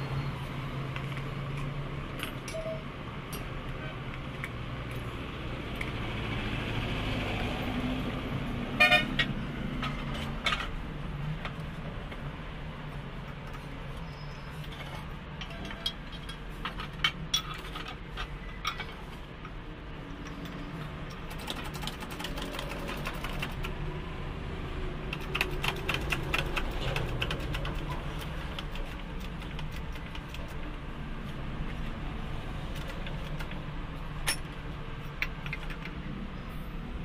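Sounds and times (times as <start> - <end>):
metallic clicks and clinks: 34.2 - 36.0.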